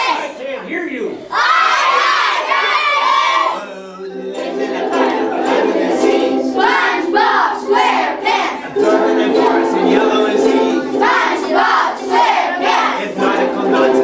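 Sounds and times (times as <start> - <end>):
children singing in unison: 1.3 - 14.0
ukuleles strumming: 3.7 - 14.0.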